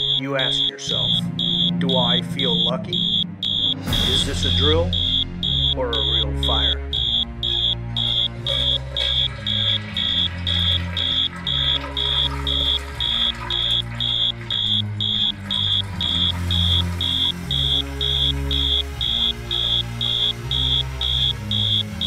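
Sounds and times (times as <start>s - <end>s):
fire alarm beeping: 0.0s - 22.0s.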